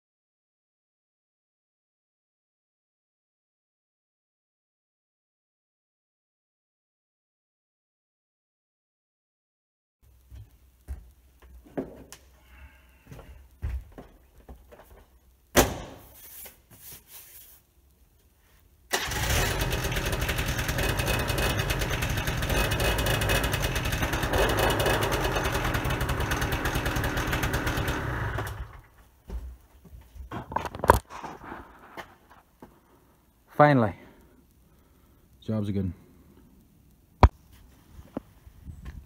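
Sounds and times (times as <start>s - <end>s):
two-stroke engine running: 19.0s - 28.9s.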